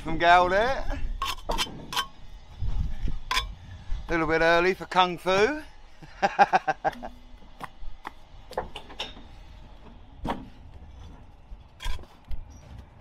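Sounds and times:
man laughing: 6.0 - 7.3.

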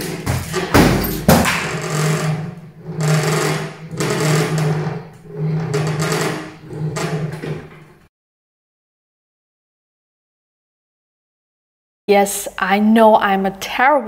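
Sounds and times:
knock and clatter: 0.0 - 2.4.

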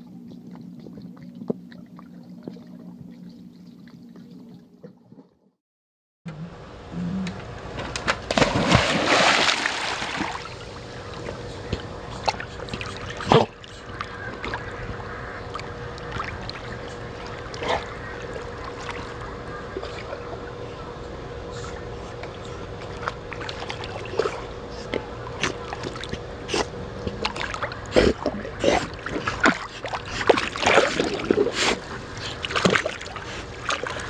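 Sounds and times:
dogs splashing in water: 8.0 - 14.9, 27.0 - 34.0.

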